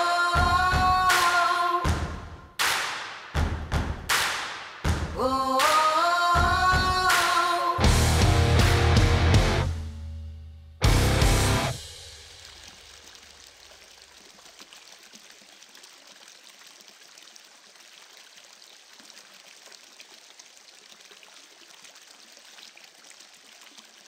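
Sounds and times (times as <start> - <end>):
faint flowing water: 11.2 - 24.0
water trickling and splashing: 11.7 - 24.0.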